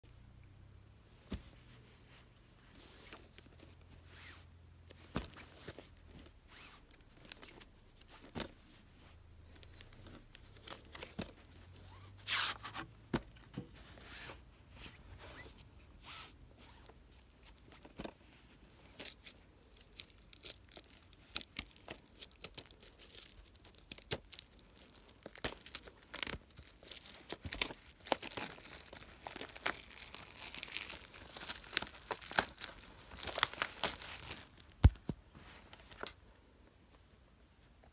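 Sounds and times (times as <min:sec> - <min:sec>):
plastic wrap crinkling and tearing: 0:18.9 - 0:35.1.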